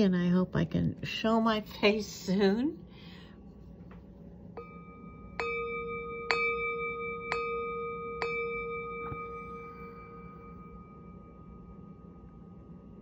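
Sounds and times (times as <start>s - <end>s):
singing bowl struck and ringing: 4.5s - 13.0s.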